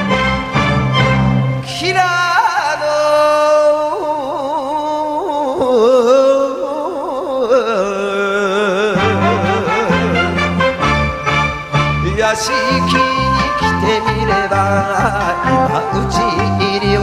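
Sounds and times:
band playing: 0.0s - 2.0s, 9.0s - 17.0s
man singing with wide vibrato: 1.6s - 17.0s.

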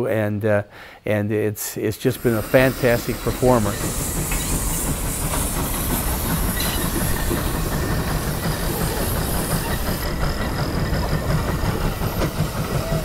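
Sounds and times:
high steam hiss: 2.0s - 13.0s
steam engine exhaust chuffing: 2.1s - 13.0s.

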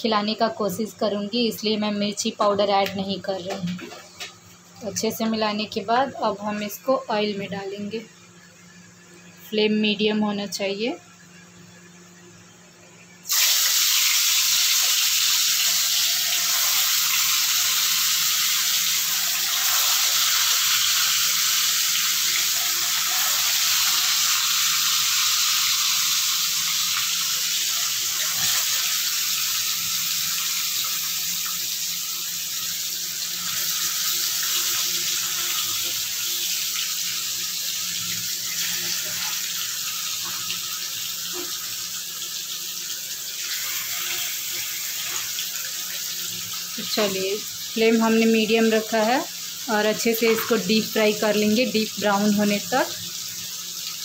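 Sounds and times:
fish sizzling in hot oil: 13.2s - 54.0s.

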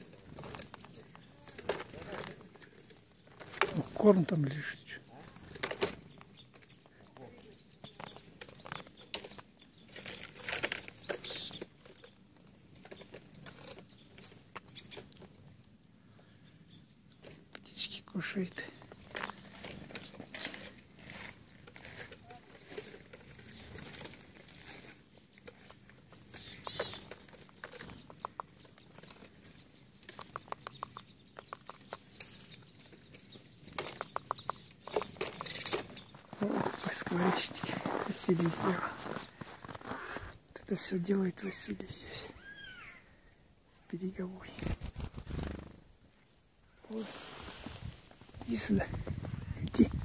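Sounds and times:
small birds calling: 0.0s - 50.0s
bird pecking taps: 30.1s - 32.1s
footsteps crunching on snow: 36.1s - 40.4s.

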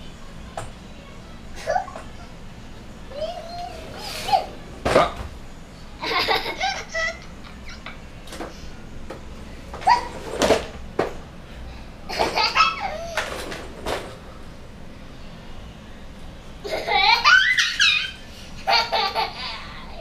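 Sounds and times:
toddler laughing and giggling: 3.1s - 4.6s, 6.0s - 8.0s, 12.1s - 13.2s, 16.6s - 20.0s.

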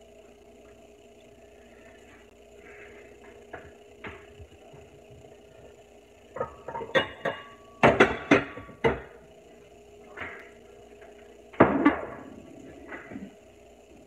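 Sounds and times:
dishes and utensils clinking: 6.4s - 9.0s.

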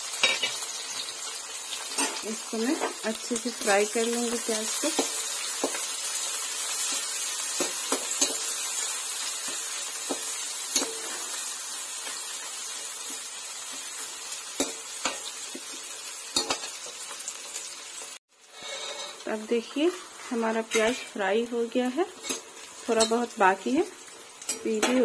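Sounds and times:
onions sizzling in hot oil: 0.0s - 25.0s
metal spoon scraping pan: 18.5s - 19.3s.

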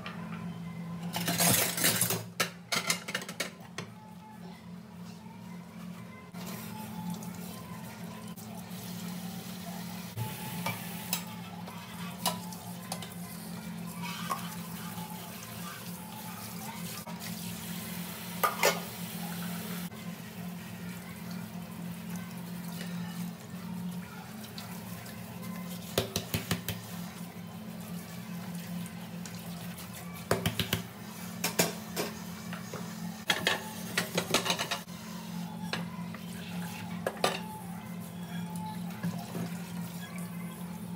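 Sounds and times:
dishes clinking and clattering: 1.0s - 3.8s, 18.4s - 18.9s, 33.3s - 34.9s, 37.0s - 37.5s.

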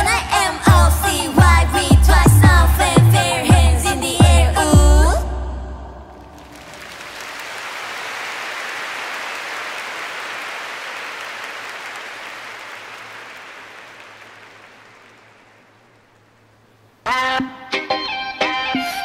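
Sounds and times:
crowd cheering and applauding: 6.2s - 16.1s.

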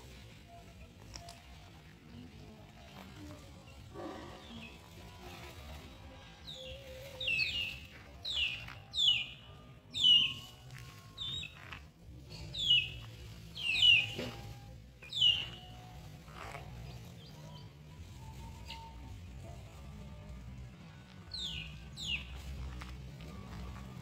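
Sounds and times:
faint background music: 0.0s - 24.0s
bird chirping: 12.4s - 19.0s, 21.3s - 24.0s.

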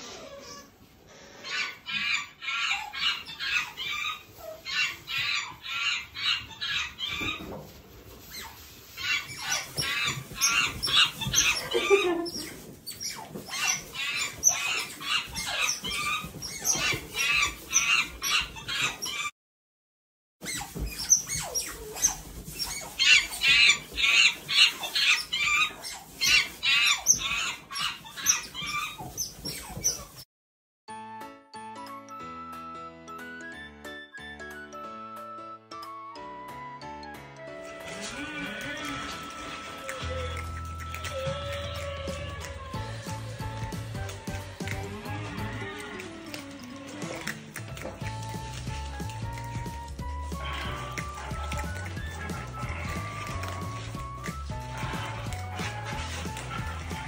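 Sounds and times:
otters chirping shrilly: 8.3s - 19.3s, 20.4s - 30.2s.

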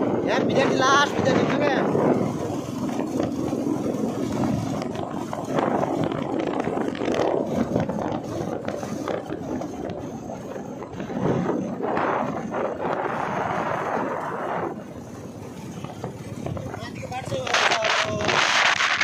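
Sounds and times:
motorcycle engine running: 0.0s - 19.0s
road noise: 0.0s - 19.0s
wind rushing over microphone: 0.0s - 19.0s.

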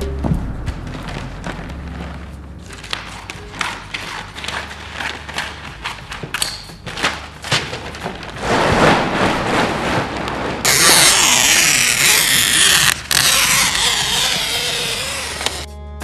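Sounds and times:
sailcloth crinkling and rustling: 6.8s - 11.5s.

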